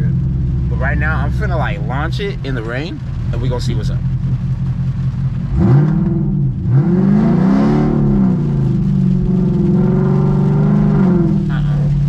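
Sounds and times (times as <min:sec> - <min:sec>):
car engine revving hard: 0:05.5 - 0:12.0.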